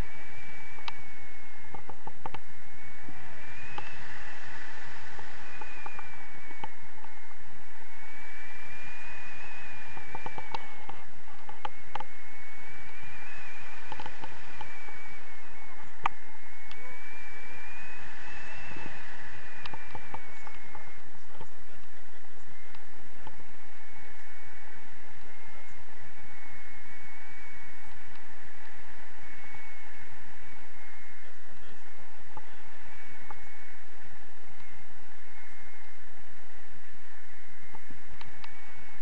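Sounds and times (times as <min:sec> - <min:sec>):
thin whistling tone: 0:00.0 - 0:39.0
wind rushing over microphone: 0:00.0 - 0:39.0
small clicks: 0:01.6 - 0:02.5, 0:03.7 - 0:07.4, 0:09.7 - 0:12.2, 0:13.4 - 0:15.4, 0:18.5 - 0:21.6, 0:37.7 - 0:38.6.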